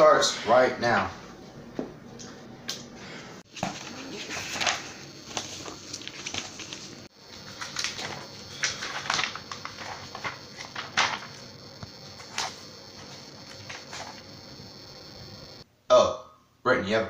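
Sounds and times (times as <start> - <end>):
paper rustles and scrapes: 3.5 - 11.4
book pages flipping: 3.5 - 14.3.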